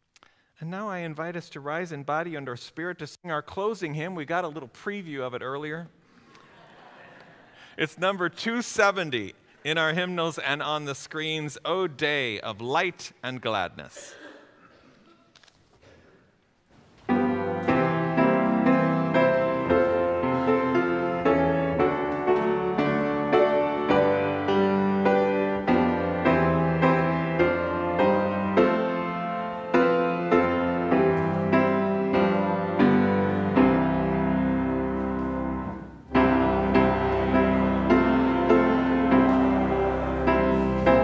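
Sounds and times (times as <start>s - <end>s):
piano playing hymn chords: 17.1s - 41.0s.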